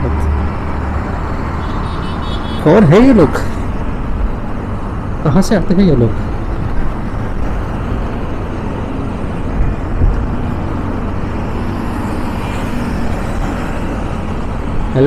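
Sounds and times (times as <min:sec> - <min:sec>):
wind rushing: 0:06.2 - 0:14.9.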